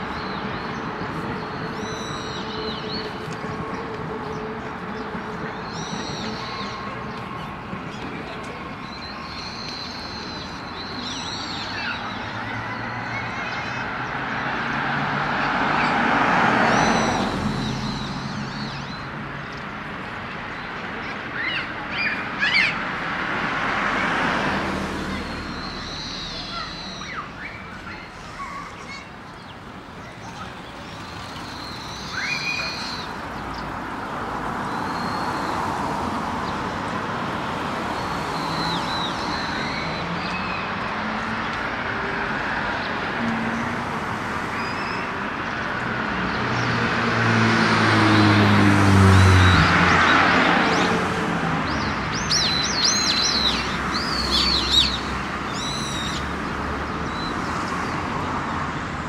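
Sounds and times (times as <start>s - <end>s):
cars passing: 0.0s - 59.0s
small birds chirping: 25.1s - 36.6s, 51.6s - 56.4s.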